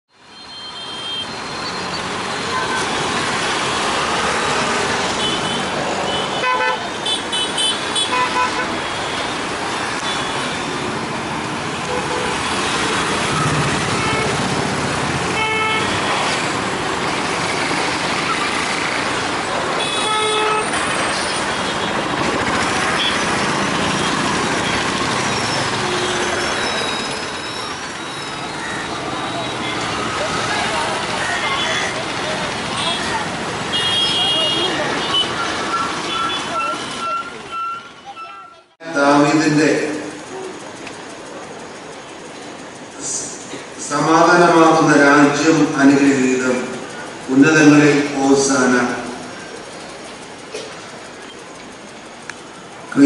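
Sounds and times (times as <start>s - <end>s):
car horns honking: 0.3s - 10.8s, 11.7s - 16.5s, 19.7s - 38.7s
vehicle engines running: 1.0s - 53.0s.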